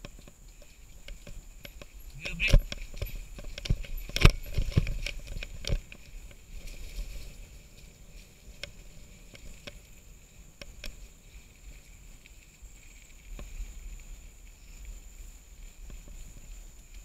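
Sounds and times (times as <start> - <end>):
bike mount knocking and rattling: 0.0 - 6.4.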